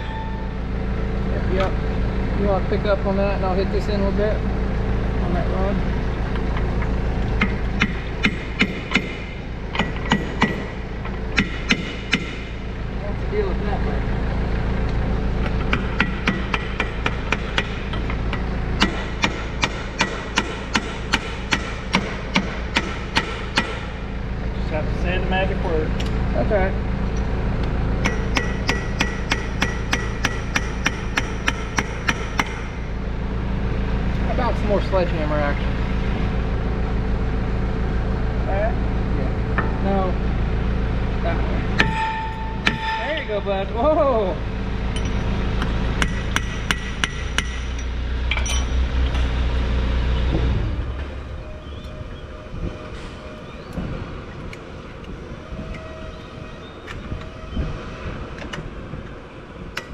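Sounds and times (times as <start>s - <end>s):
steady low hum: 0.0s - 59.9s
hammer striking steel: 7.4s - 12.6s, 15.6s - 24.0s, 28.0s - 33.0s, 41.7s - 43.6s, 44.9s - 49.3s.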